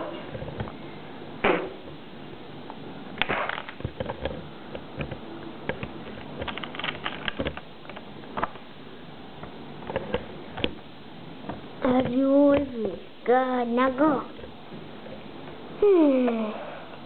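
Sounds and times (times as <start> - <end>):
plastic bricks clicking: 5.0 - 8.0.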